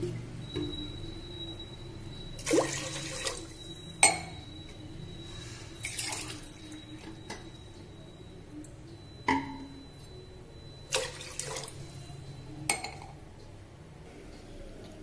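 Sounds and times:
faint steady high tone: 0.3 - 13.6
water pouring and splashing: 2.4 - 3.6.

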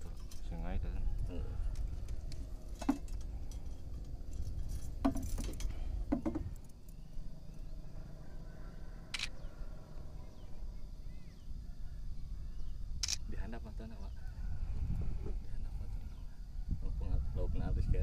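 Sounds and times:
wind rumble on microphone: 0.0 - 6.7, 11.8 - 18.0
phone camera shutter click: 9.1 - 9.4.

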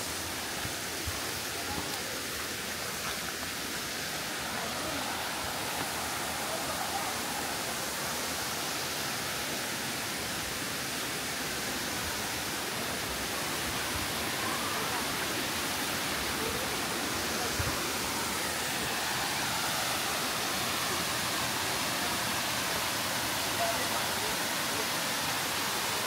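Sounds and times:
waterfall rushing: 0.0 - 26.0.

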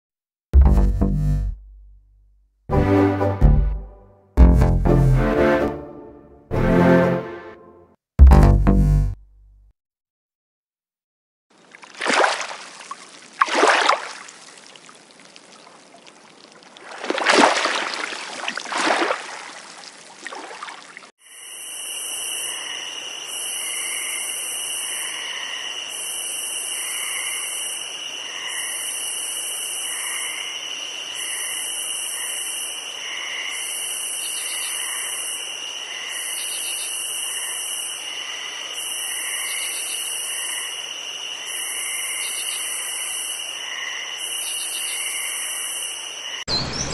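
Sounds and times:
small waves on pebble shore: 11.6 - 21.0
chirring chorus of marsh wildlife: 33.0 - 37.6, 41.5 - 45.5.

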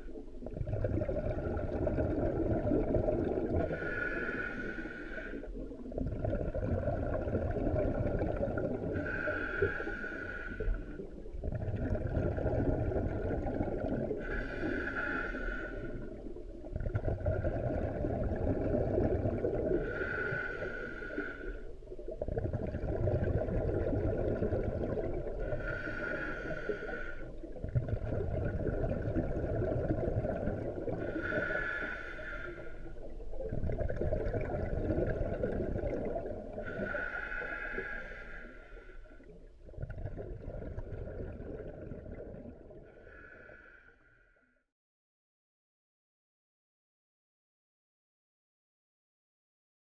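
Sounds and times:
exhaled bubbles rumbling: 0.0 - 43.3
diver inhaling through regulator: 3.2 - 5.6, 7.8 - 11.2, 12.9 - 16.2, 18.9 - 21.8, 24.3 - 27.4, 30.2 - 33.1, 34.7 - 39.4, 42.8 - 44.6.

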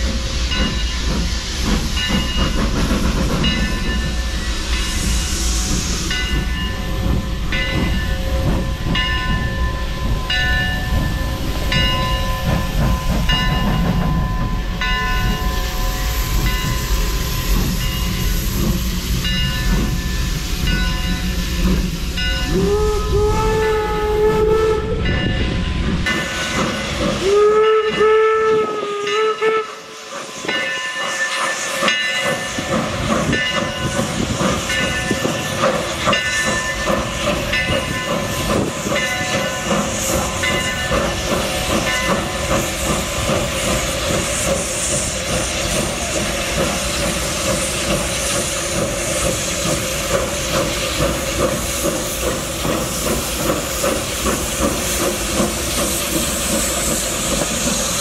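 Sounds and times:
steam hissing: 0.0 - 58.0
steam whistle blast: 22.5 - 25.2, 27.2 - 30.2.

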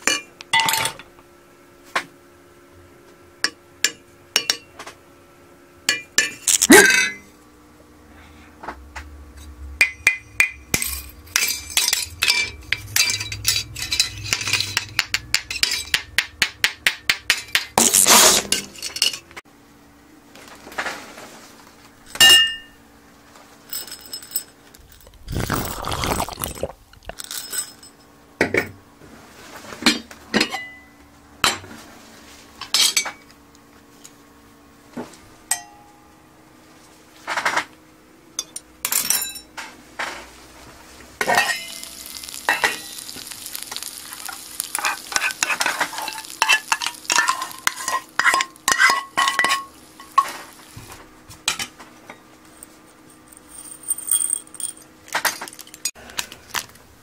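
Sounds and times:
cutlery clinking on pan and dishes: 10.0 - 16.1, 41.2 - 43.2, 43.8 - 50.5
frying sizzle: 40.7 - 51.0.

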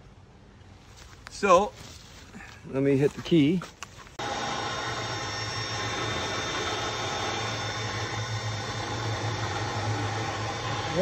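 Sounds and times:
winch motor humming: 4.2 - 11.0.

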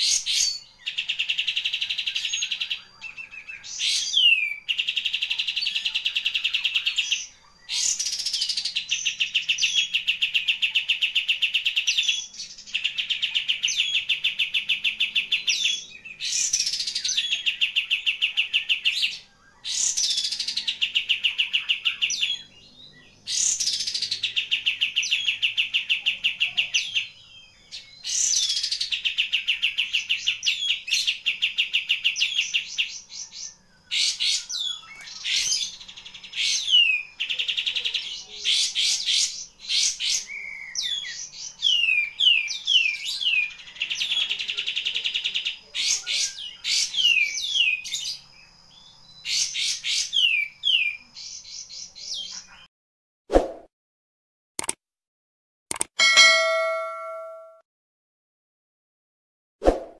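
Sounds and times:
bulbul singing trills: 0.0 - 52.7, 56.0 - 57.6.

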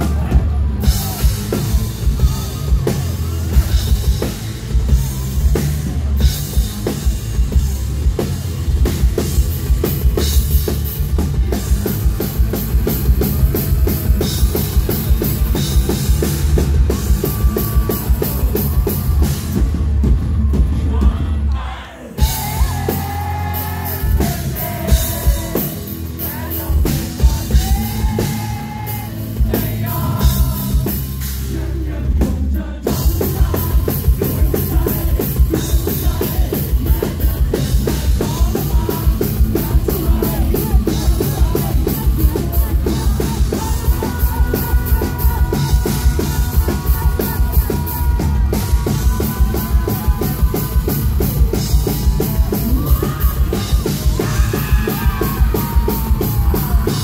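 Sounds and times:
drum kit: 0.0 - 57.0
man singing: 20.8 - 57.0
electric guitar: 22.2 - 57.0.

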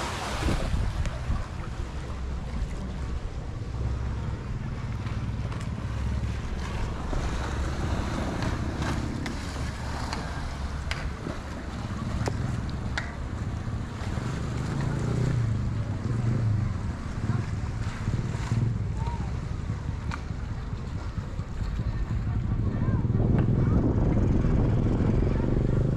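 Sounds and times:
sea water splashing against wall: 0.0 - 22.6
wind buffeting microphone: 0.0 - 25.9.

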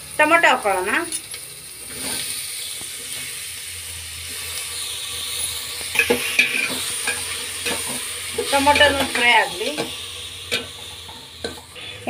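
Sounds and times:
food sizzling in oil: 0.0 - 12.0
spoon scraping a metal pot: 5.9 - 9.9.

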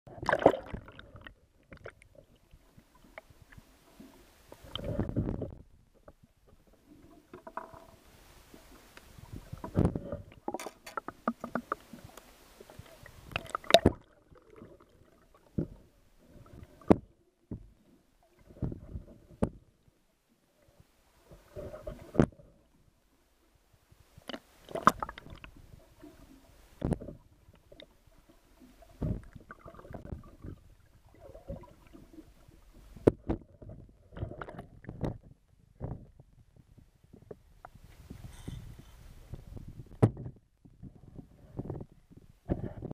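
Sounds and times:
underwater knocks and clicks: 0.1 - 3.6, 4.5 - 8.0, 9.0 - 19.8, 21.5 - 22.5, 24.2 - 28.0, 28.6 - 32.2, 32.8 - 42.9
water sloshing: 0.1 - 17.1.

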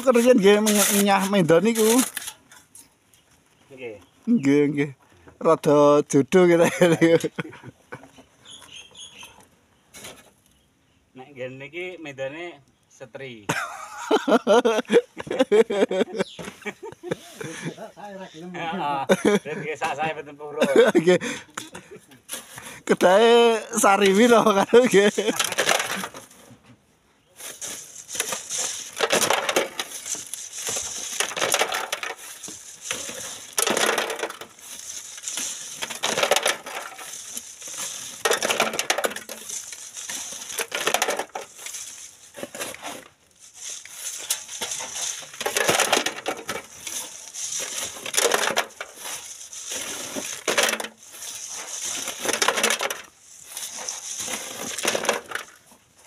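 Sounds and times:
gravel rattling on wire sieve: 0.0 - 2.4, 22.4 - 26.4, 27.4 - 55.6
shovel scraping sand and gravel: 0.0 - 2.8, 9.9 - 10.4, 14.5 - 18.4, 19.2 - 26.5, 27.3 - 56.0.

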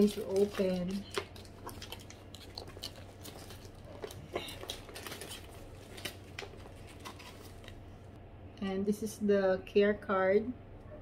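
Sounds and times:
handbag clicks and rustles: 0.0 - 7.8
faint paper crinkling: 0.0 - 8.2
low steady hum: 0.0 - 11.0.

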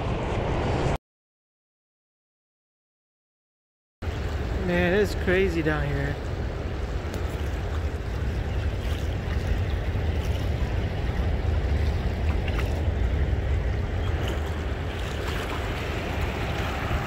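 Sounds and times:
wind rumble on microphone: 4.0 - 17.0
turbulent river water rushing: 4.1 - 17.0.

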